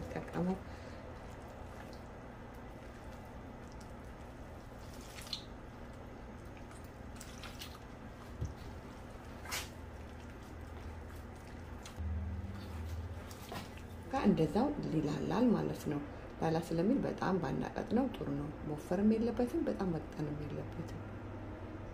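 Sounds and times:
wet squishing of dough mixing: 0.0 - 15.7
low hum: 0.0 - 21.9.

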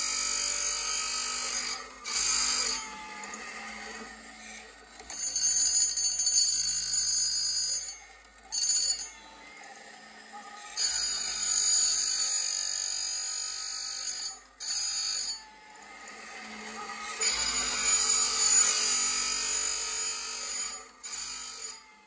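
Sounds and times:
chain sharpener grinding: 0.0 - 22.0.

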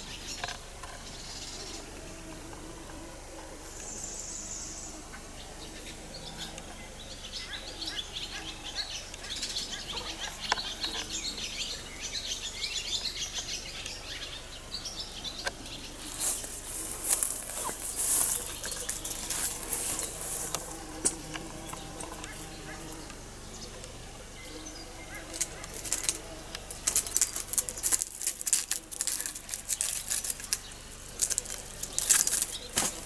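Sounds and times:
songbirds chirping: 0.0 - 33.0
rustling and scratching: 15.9 - 24.0, 25.0 - 33.0.

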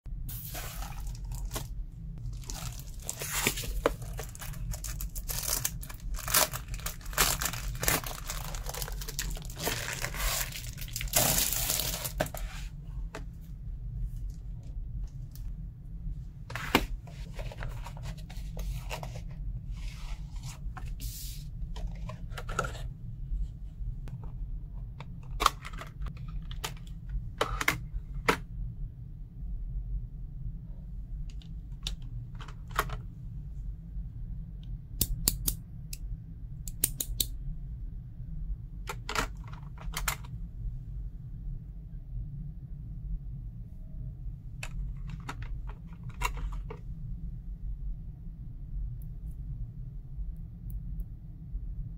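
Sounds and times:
steady low hum: 0.1 - 51.9
plastic packaging crinkling: 0.4 - 12.4.

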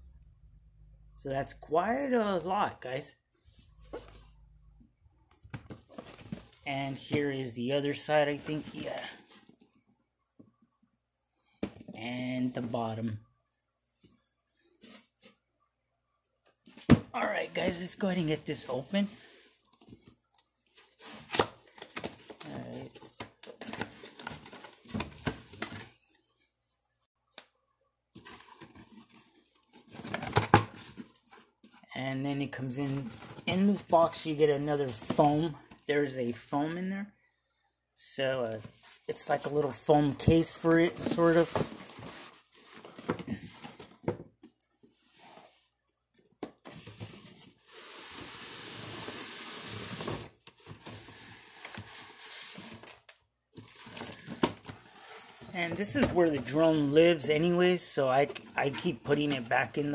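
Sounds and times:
cardboard rustling and scraping: 5.6 - 7.3, 16.6 - 26.0, 38.5 - 44.2, 46.6 - 59.9.

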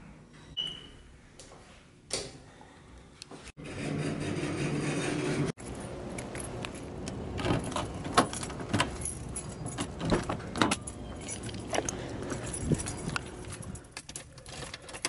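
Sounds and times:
keys jangling: 5.6 - 15.0.

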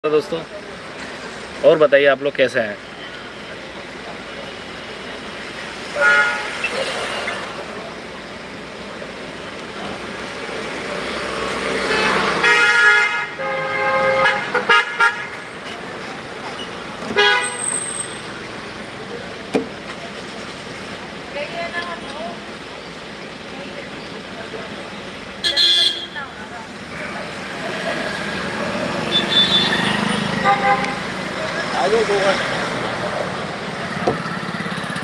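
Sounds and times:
street traffic: 0.0 - 35.0
vehicle horns honking: 5.9 - 7.0, 11.8 - 15.6, 17.1 - 18.2, 25.4 - 27.3, 29.0 - 31.1.

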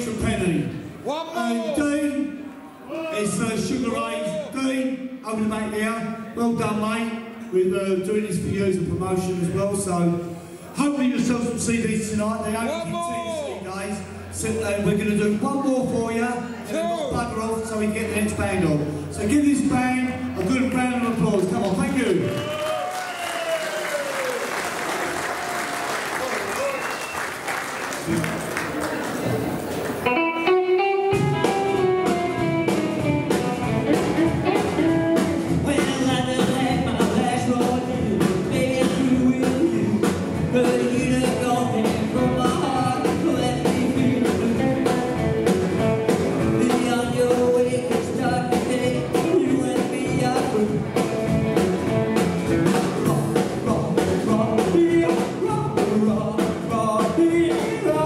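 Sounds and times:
electric guitars: 29.1 - 47.2, 47.8 - 55.8
drum kit: 29.2 - 58.0
upright double bass: 31.1 - 58.0
man singing lead vocal: 35.6 - 44.9, 46.6 - 51.0, 53.0 - 58.0.

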